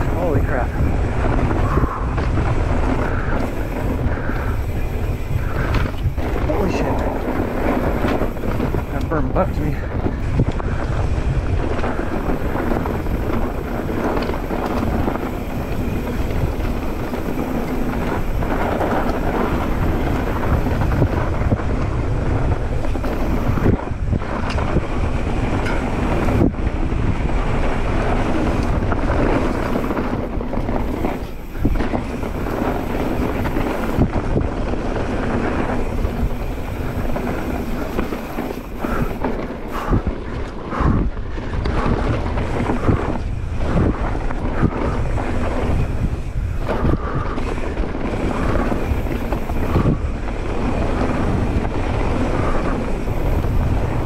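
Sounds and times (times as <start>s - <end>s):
bike tyre noise and rattle: 0.0s - 54.0s
wind noise on microphone: 0.0s - 54.0s.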